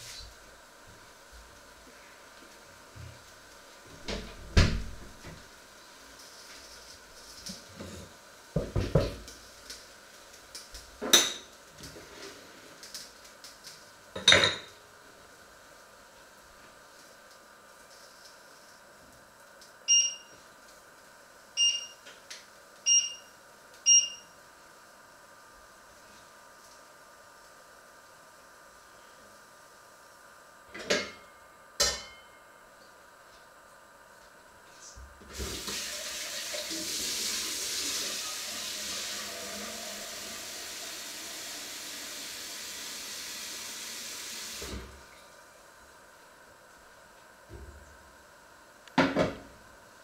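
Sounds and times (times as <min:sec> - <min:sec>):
stove touch control beeps: 0:19.9 - 0:20.4, 0:21.6 - 0:22.0, 0:22.9 - 0:24.4
water running into sink: 0:35.3 - 0:44.9.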